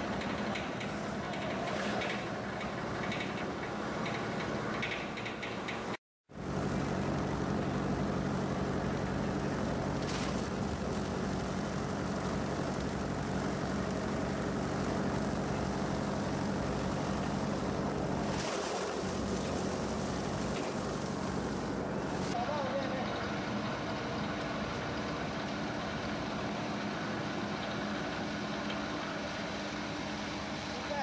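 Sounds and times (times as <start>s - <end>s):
motor hum: 6.3s - 31.0s
rotor blades churning plastic film: 6.4s - 22.4s.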